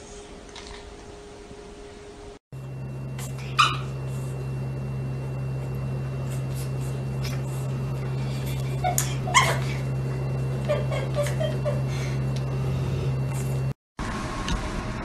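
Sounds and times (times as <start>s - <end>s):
steady low hum: 0.0s - 15.0s
dog yelping: 3.3s - 4.0s, 8.8s - 9.8s.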